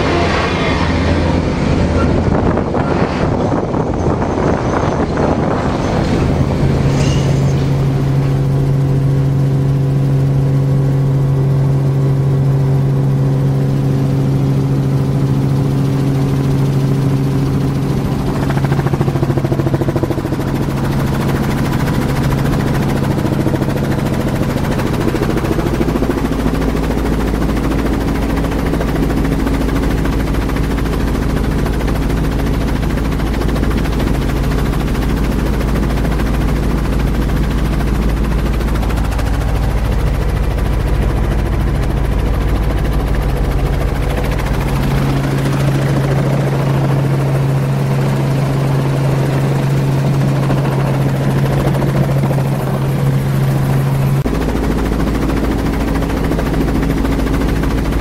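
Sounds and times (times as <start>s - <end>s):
deep low rumble: 0.0s - 9.6s
helicopter engine and rotor drone: 0.0s - 58.0s.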